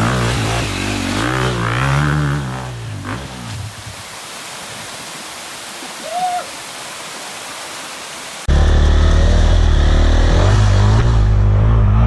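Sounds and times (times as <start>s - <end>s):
motorcycle engine revving: 0.0s - 3.6s, 8.5s - 12.0s
stream and waterfall rushing: 0.0s - 8.5s.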